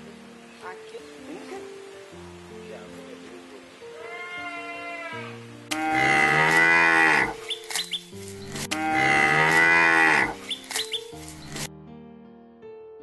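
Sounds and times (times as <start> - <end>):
cow mooing: 4.0 - 7.4, 8.7 - 10.4.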